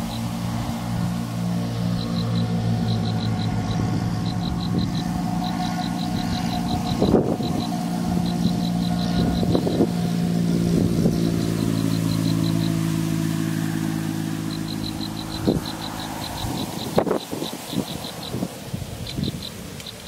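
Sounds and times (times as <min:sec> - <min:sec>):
engine running: 0:00.0 - 0:20.0
rapid high-pitched ticking: 0:01.8 - 0:10.1, 0:11.1 - 0:12.9, 0:14.4 - 0:20.0.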